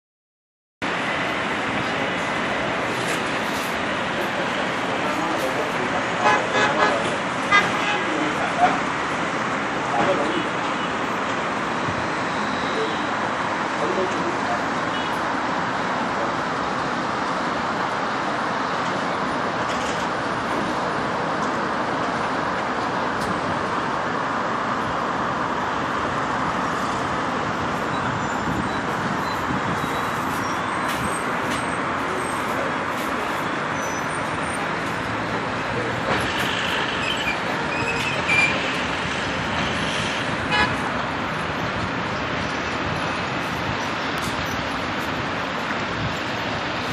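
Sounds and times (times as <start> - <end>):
city street traffic hum: 0.8 - 46.9
car horn toots: 40.5 - 40.8.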